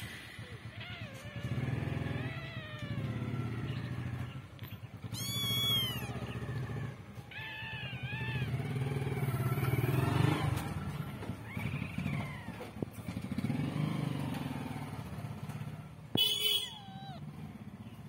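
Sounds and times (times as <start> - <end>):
kitten meowing: 5.0 - 10.0, 16.5 - 17.3.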